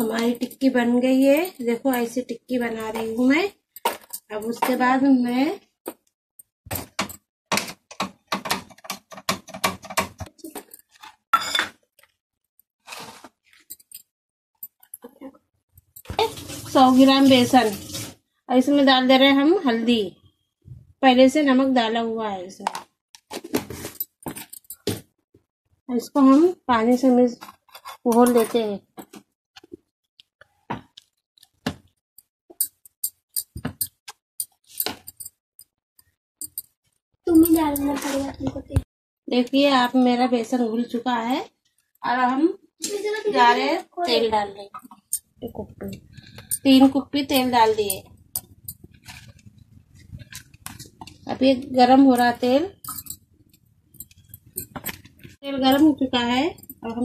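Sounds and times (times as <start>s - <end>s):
cookware clicking and clinking: 9.5s - 11.8s, 52.2s - 53.2s, 54.0s - 56.0s.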